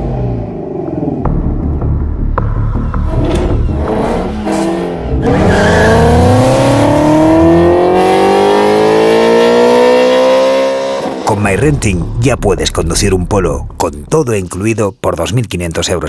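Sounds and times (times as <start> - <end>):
sports car engine accelerating hard: 2.9 - 11.3.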